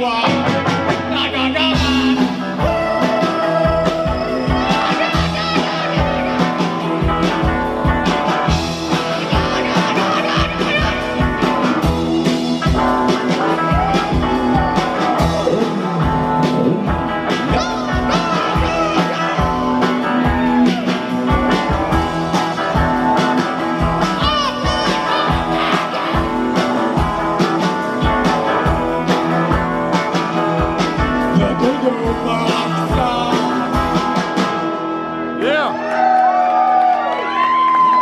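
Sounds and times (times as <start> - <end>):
person singing: 0.0 - 6.9, 9.0 - 11.8, 13.4 - 22.0, 24.0 - 26.8, 31.2 - 33.9
steady drum beat: 0.0 - 35.6
electric guitars: 0.0 - 38.0.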